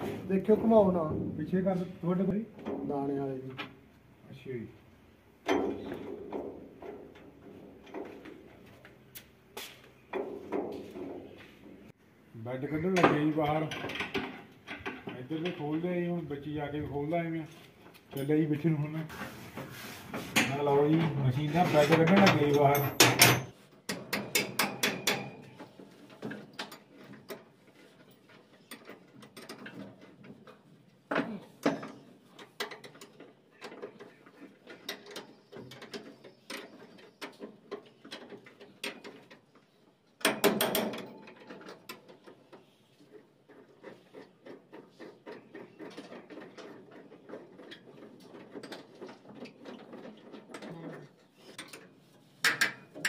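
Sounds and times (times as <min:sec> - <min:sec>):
hand tools clinking on steel: 0:20.4 - 0:23.6.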